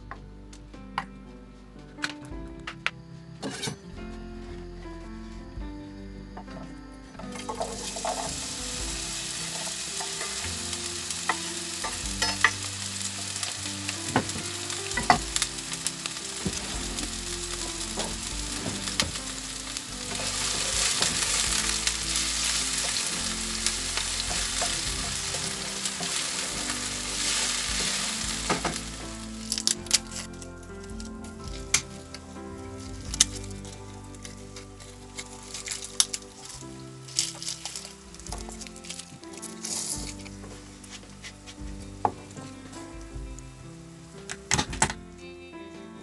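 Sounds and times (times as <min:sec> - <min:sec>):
onion sizzling in hot oil: 0:07.4 - 0:32.2, 0:32.8 - 0:42.4.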